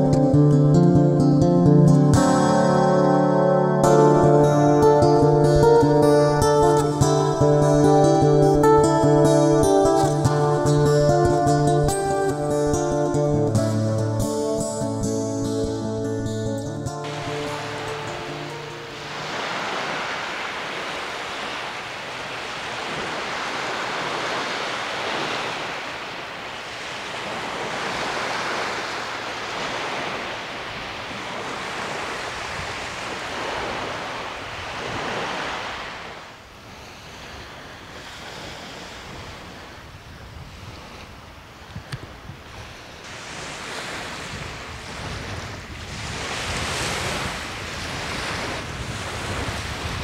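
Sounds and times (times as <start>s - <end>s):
wind: 0.0s - 50.0s
waves washing onto sand: 17.0s - 50.0s.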